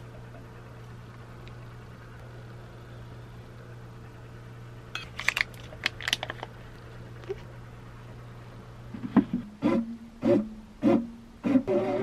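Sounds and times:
low hum: 0:00.0 - 0:12.0
foil wrapper crinkling: 0:05.0 - 0:06.6.

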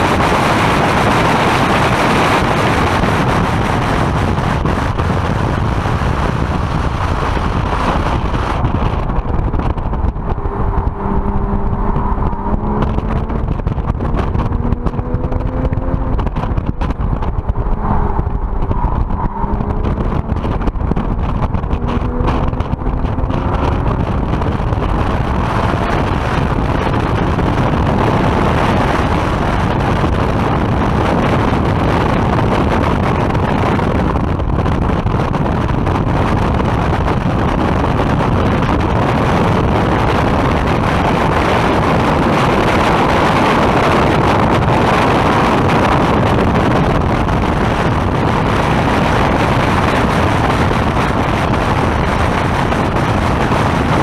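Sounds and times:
car engine pulling hard: 0:00.0 - 0:54.0
heavy wind noise: 0:00.0 - 0:54.0.

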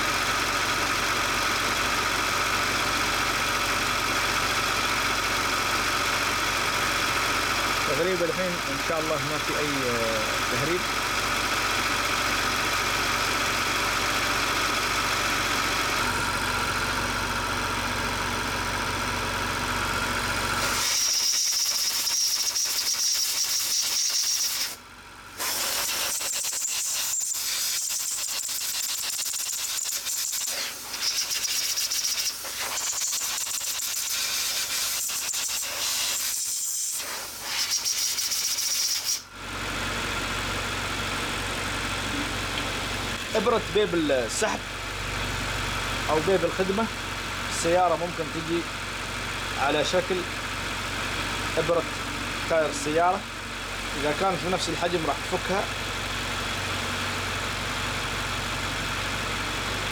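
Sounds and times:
car engine idling: 0:00.0 - 0:20.7, 0:24.7 - 0:37.4, 0:38.1 - 0:59.9
high hiss of escaping gas: 0:20.6 - 0:24.8, 0:25.4 - 0:39.2.

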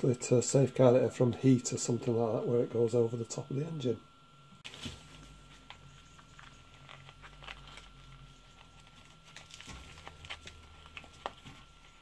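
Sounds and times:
tape peeling crackle: 0:04.6 - 0:11.7.

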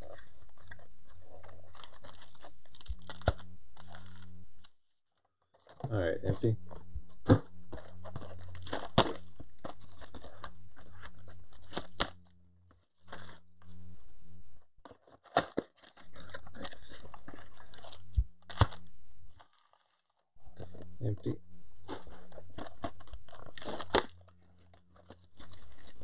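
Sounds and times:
plastic wrapper crinkling: 0:00.0 - 0:04.7, 0:07.7 - 0:13.4, 0:14.8 - 0:20.2, 0:21.8 - 0:26.0
steady low hum: 0:00.0 - 0:04.8, 0:05.8 - 0:14.9, 0:15.9 - 0:19.5, 0:20.4 - 0:26.0.

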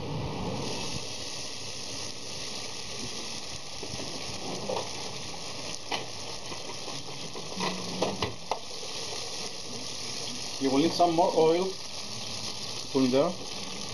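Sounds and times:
oil sizzling in frying pan: 0:00.0 - 0:13.9.

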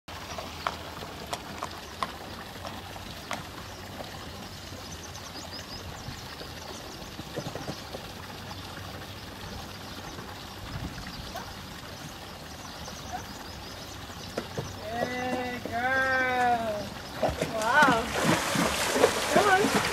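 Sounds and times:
horse hooves on brick paving: 0:00.1 - 0:04.5, 0:06.4 - 0:08.4, 0:14.1 - 0:19.9
rushing water: 0:00.1 - 0:19.9.

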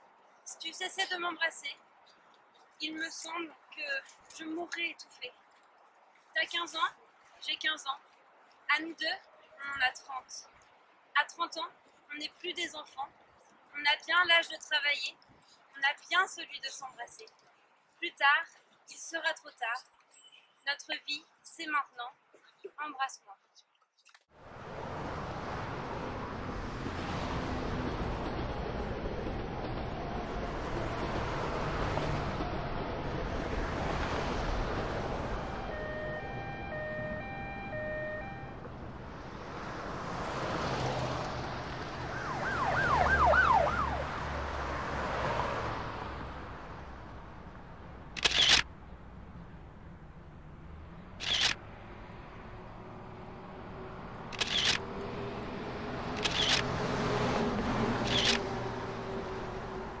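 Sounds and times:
traffic noise: 0:00.0 - 1:00.0
wind: 0:00.0 - 1:00.0
two-tone emergency siren: 0:28.4 - 0:38.7, 0:42.0 - 0:44.4
short sharp clicks: 0:48.2 - 0:48.7, 0:51.2 - 0:51.6, 0:54.3 - 0:54.8, 0:56.2 - 0:56.7, 0:58.0 - 0:58.5.

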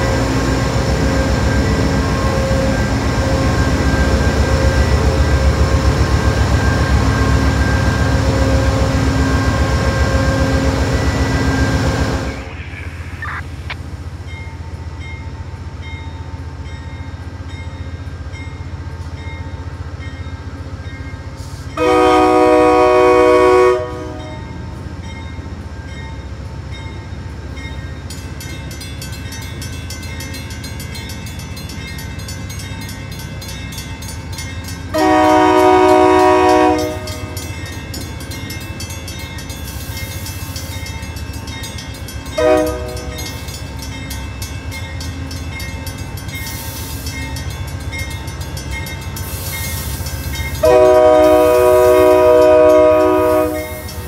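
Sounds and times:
train air horn blasts: 0:21.8 - 0:24.4, 0:34.9 - 0:37.4, 0:42.4 - 0:43.2, 0:50.6 - 0:54.0.

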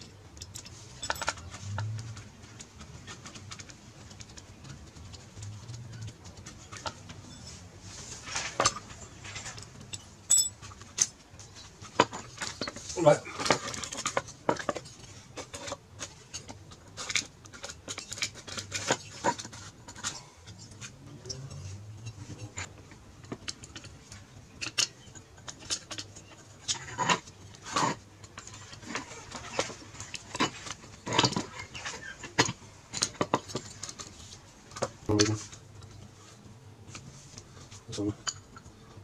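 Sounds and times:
metallic clinks of hand tools: 0:00.5 - 0:01.3, 0:09.9 - 0:10.6.

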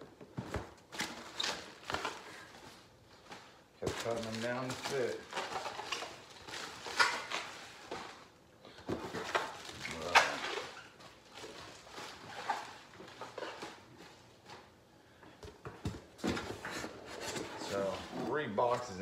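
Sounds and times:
bubble wrap crinkling: 0:00.9 - 0:08.3, 0:09.4 - 0:13.8.

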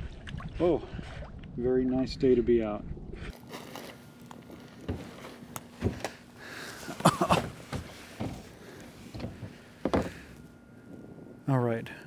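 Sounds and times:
kayak hull and paddle knocking: 0:09.1 - 0:10.3.

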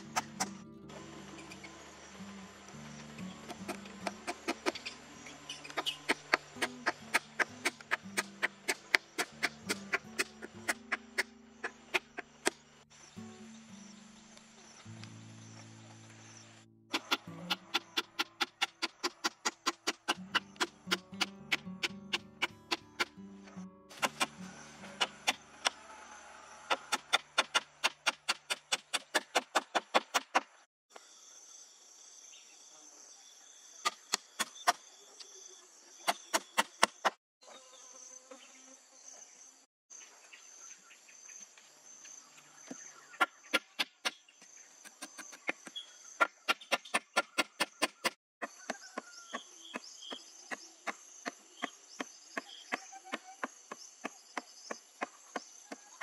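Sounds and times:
insects chirring: 0:00.0 - 0:56.0.

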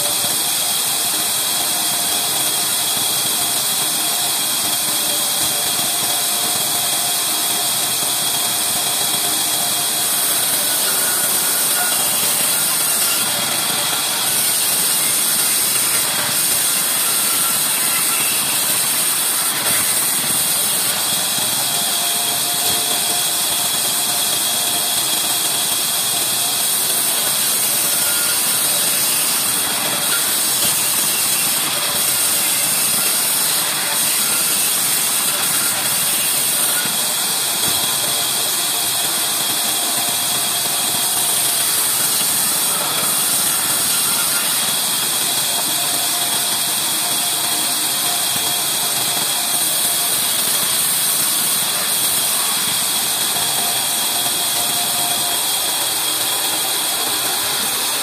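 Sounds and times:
band saw ripping wood: 0:10.7 - 0:21.0.

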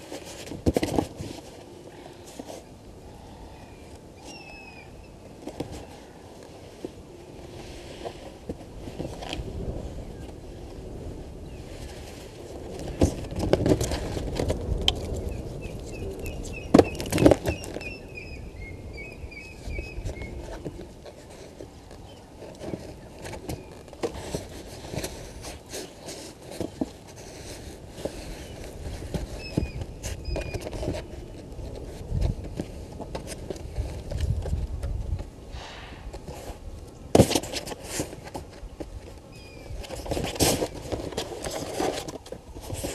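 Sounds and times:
wind rumble on microphone: 0:02.7 - 0:42.9
bird chirping: 0:03.3 - 0:05.2, 0:15.2 - 0:20.4.

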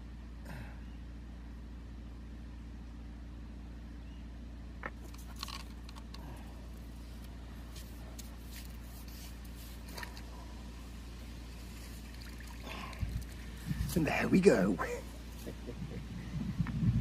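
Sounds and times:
steady low hum: 0:00.0 - 0:17.0
fishing rod clicks and rustles: 0:04.8 - 0:10.5.

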